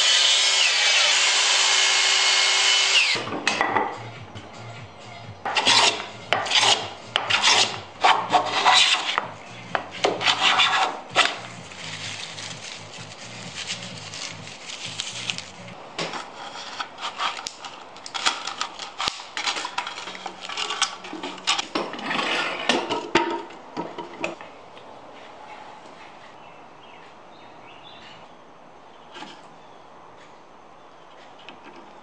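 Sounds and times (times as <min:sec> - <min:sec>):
hand plane scraping strokes: 0:05.5 - 0:15.6, 0:16.2 - 0:17.5, 0:20.4 - 0:22.7.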